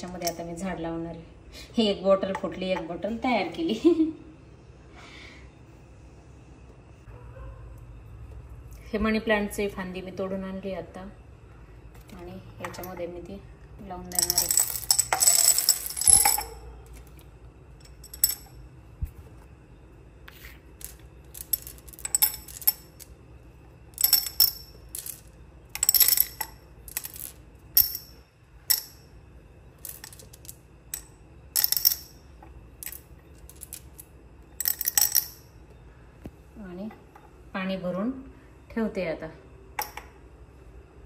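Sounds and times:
stones clinking against glass jar: 14.1 - 16.7, 17.8 - 18.6, 20.7 - 23.2, 23.9 - 29.1, 29.8 - 35.5.

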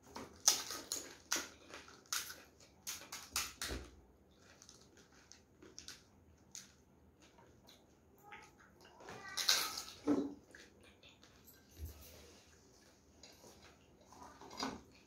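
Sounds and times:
crisp shells cracking and crunching: 0.1 - 6.8.

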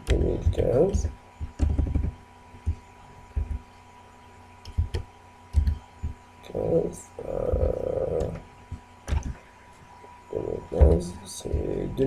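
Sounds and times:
low hum: 0.0 - 12.0
computer keyboard key presses: 1.4 - 2.8, 4.6 - 5.8.

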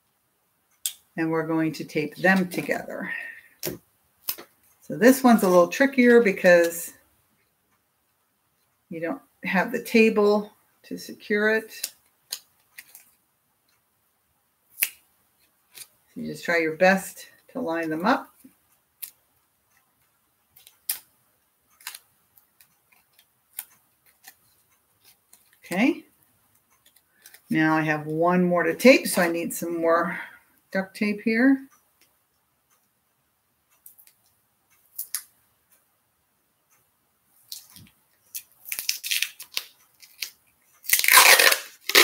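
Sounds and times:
duct tape ripping: 37.5 - 42.0.

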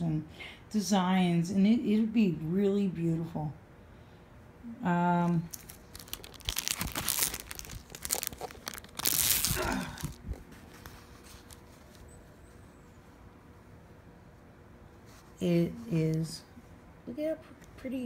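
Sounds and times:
plastic film crinkling: 5.3 - 12.1.

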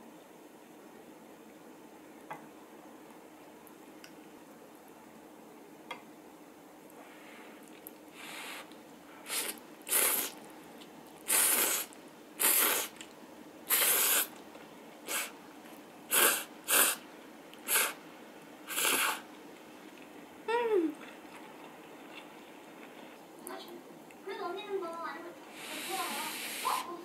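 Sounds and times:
noodles being slurped: 9.3 - 10.4, 11.3 - 13.1, 13.7 - 14.4, 16.1 - 17.0, 18.7 - 19.2.

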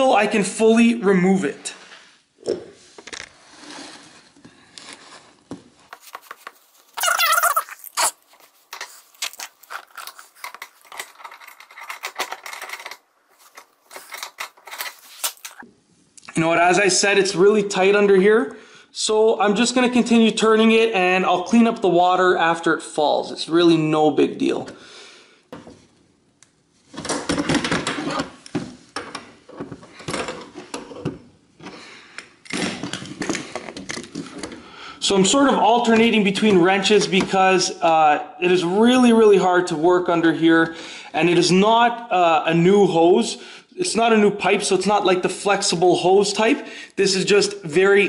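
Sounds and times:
towel rustling: 4.9 - 15.6.

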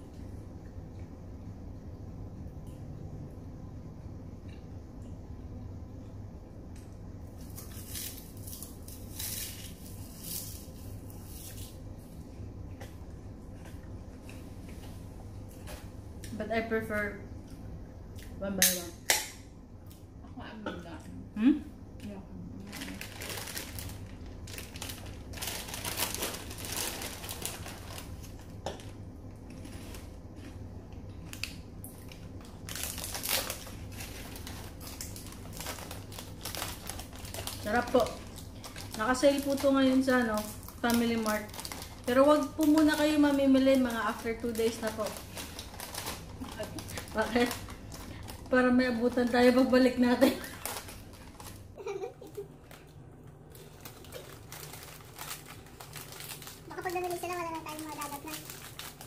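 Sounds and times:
crunching seaweed sheets: 22.6 - 28.4, 53.5 - 59.0
plastic packs crinkling: 22.6 - 30.1, 31.3 - 59.0
crunching of crispy seaweed: 53.5 - 59.0.

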